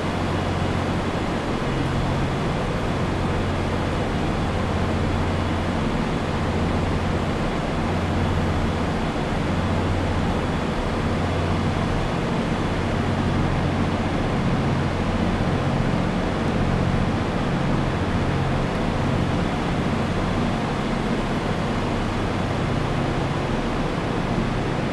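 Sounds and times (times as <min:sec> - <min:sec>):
low engine hum: 0:00.0 - 0:24.9
trains rumbling and hissing: 0:00.0 - 0:24.9.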